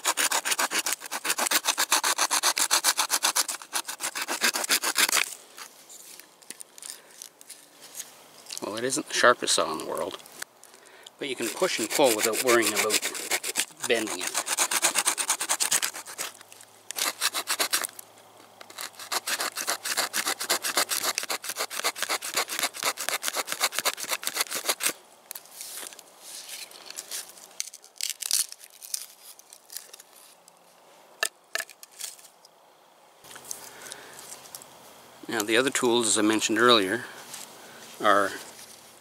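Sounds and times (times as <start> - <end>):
saw cutting through log: 0.0 - 5.2, 11.3 - 16.4, 17.0 - 17.9, 18.7 - 24.9.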